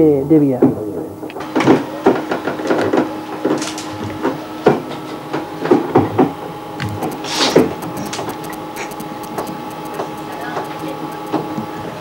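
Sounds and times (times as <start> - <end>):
train carriage knocks and clunks: 0.0 - 8.3
steady hum: 1.2 - 12.0.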